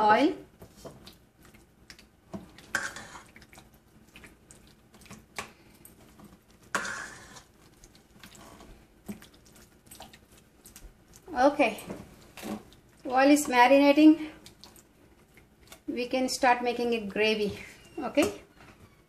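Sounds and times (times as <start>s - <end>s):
wet squishing: 0.6s - 16.0s
spatula scraping metal bowl: 2.7s - 3.3s, 6.7s - 7.5s.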